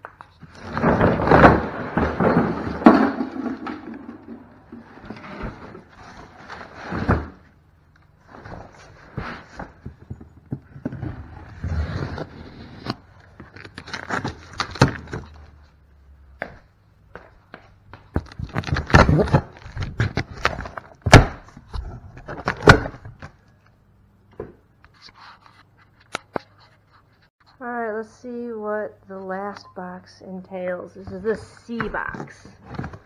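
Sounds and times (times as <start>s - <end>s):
cardboard scraping and rustling: 0.4s - 7.5s, 8.2s - 15.5s
box thunks: 0.6s - 5.8s, 6.8s - 7.5s, 18.2s - 21.5s, 22.3s - 23.3s.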